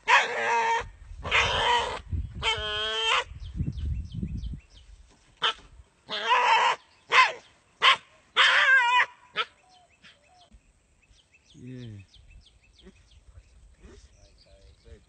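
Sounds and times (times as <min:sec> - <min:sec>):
dog barking: 0:00.0 - 0:01.5, 0:06.2 - 0:09.5.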